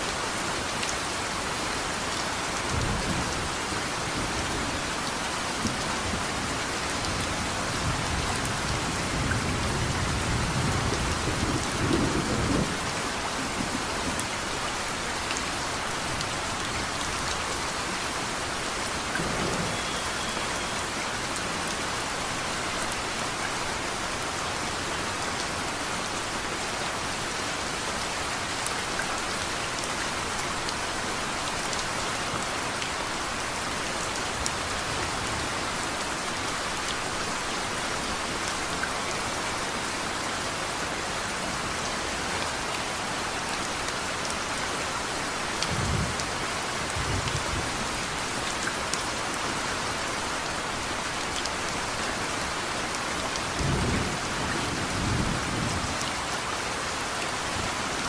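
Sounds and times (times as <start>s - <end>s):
rain hissing: 18.2s - 22.7s.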